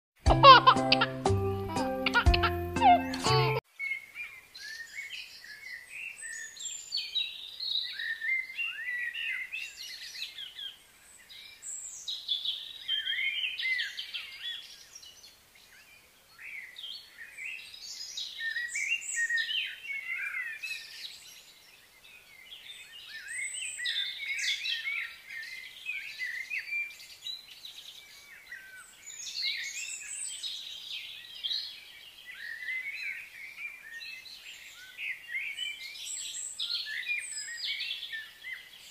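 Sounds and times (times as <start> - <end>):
birds chirping and calling: 0.4 - 38.9.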